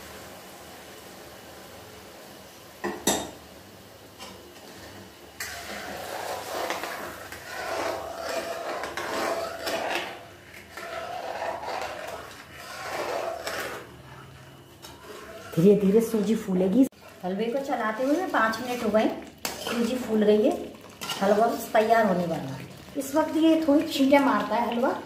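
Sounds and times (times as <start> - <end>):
steady hiss in a pan: 0.0 - 25.0
spatula scraping a metal pan: 4.7 - 20.2, 21.0 - 21.8.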